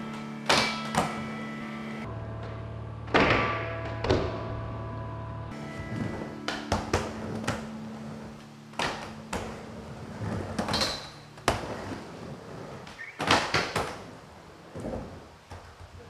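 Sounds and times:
skateboard wheels rolling on plywood: 0.0 - 2.1, 5.5 - 16.0
skateboard grinding: 5.5 - 16.0.

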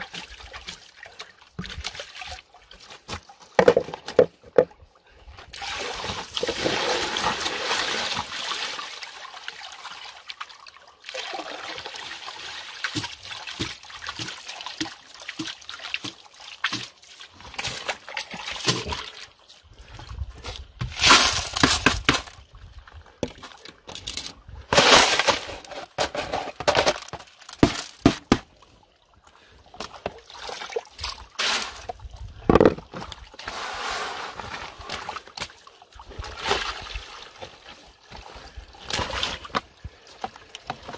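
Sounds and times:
water sloshing and splashing: 0.0 - 40.9
water poured from a basin: 5.6 - 19.2.

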